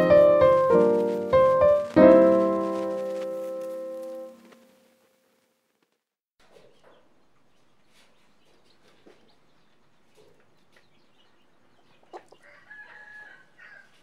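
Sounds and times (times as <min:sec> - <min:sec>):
chicks peeping: 0:00.2 - 0:04.1, 0:06.4 - 0:14.0.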